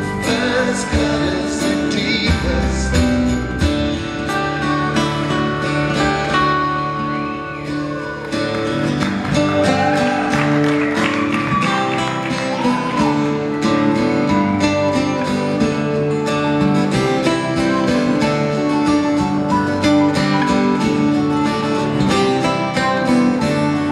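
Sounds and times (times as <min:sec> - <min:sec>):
acoustic guitars playing: 0:00.0 - 0:23.9.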